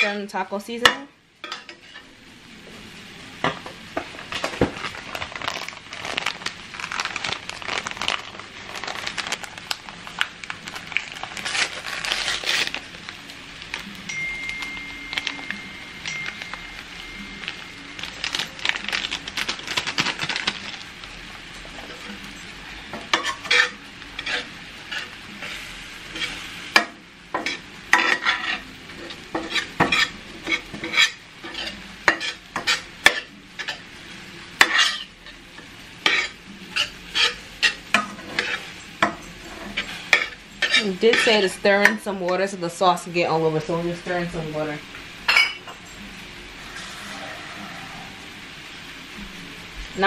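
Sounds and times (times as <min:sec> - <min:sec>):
beef sizzling in pan: 0:00.0 - 0:50.0
spatula scraping pan: 0:01.5 - 0:02.1, 0:23.0 - 0:33.8, 0:36.0 - 0:42.0, 0:46.6 - 0:48.3.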